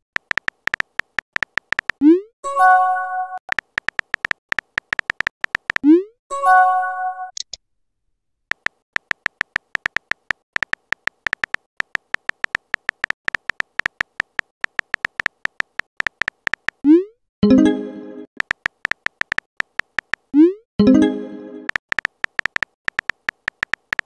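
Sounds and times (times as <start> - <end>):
phone keyboard typing clicks: 0.2 - 2.1, 3.5 - 5.9, 8.5 - 16.8, 18.4 - 20.3, 21.7 - 24.0.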